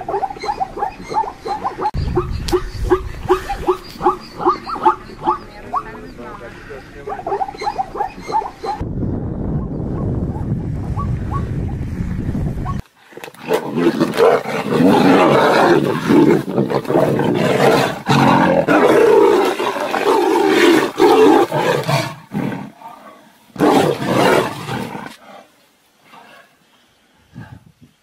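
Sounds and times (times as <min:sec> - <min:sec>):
tigers snarling and roaring: 0:13.1 - 0:26.6.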